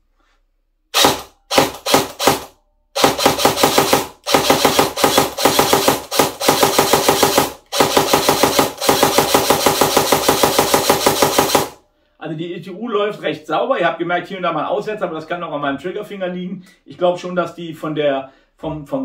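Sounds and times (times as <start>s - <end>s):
airsoft gun gearbox cycling: 1.0s - 11.8s.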